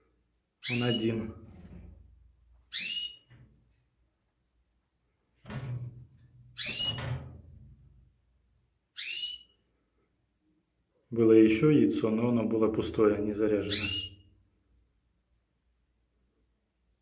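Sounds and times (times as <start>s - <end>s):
whistled bird calls: 2.7s - 3.3s, 6.6s - 7.0s, 9.0s - 9.6s, 13.7s - 14.3s.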